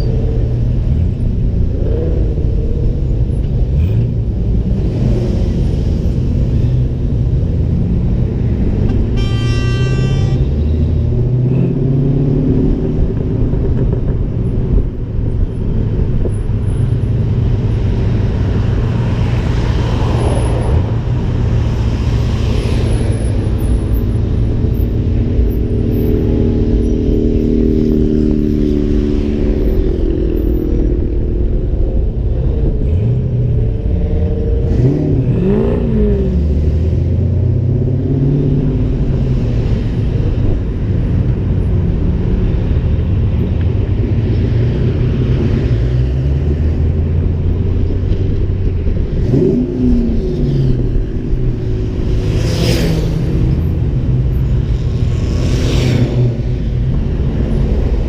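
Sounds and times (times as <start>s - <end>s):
engine and road rumble: 0.0s - 58.0s
passing car engines: 0.0s - 58.0s
engine revving: 34.4s - 39.0s, 49.1s - 54.0s.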